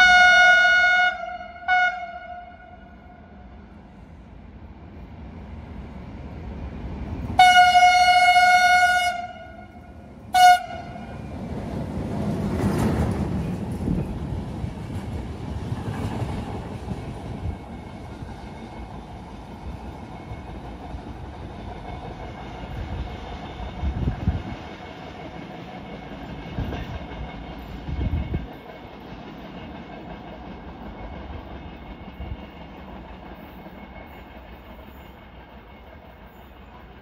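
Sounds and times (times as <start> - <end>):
train horn blasts: 0.0 - 3.6, 7.4 - 11.2
train running past: 0.0 - 37.0.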